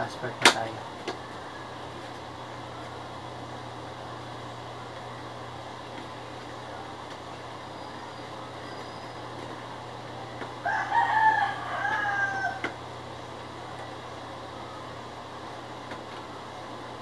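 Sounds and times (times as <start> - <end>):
low background hum: 0.0 - 17.0
rooster crowing: 1.2 - 2.1, 10.5 - 12.9.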